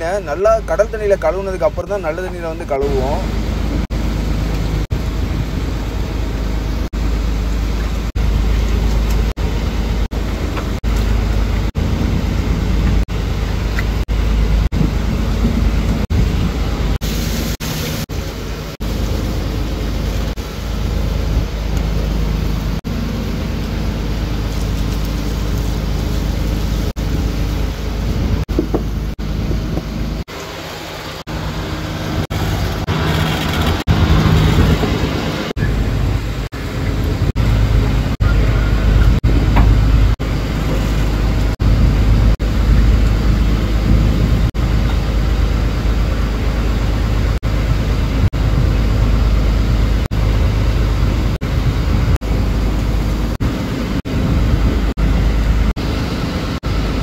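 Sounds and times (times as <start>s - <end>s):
boat engine rumble: 0.0s - 57.0s
water hiss: 17.0s - 22.7s.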